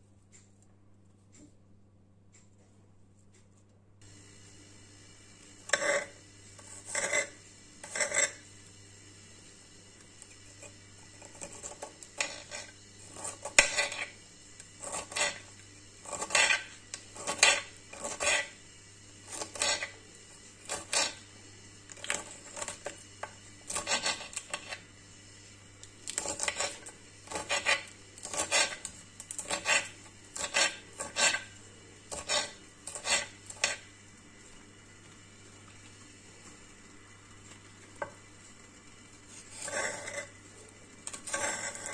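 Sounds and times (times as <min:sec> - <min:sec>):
knife cutting vegetable stalks: 0:26.0 - 0:31.5.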